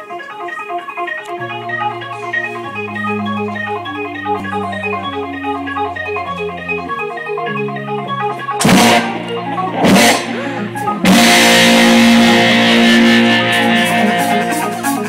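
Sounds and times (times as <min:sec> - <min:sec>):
keyboard organ chords: 0:00.0 - 0:15.0
descending bass line: 0:02.7 - 0:15.0
rock band loud chord hits: 0:08.6 - 0:14.9.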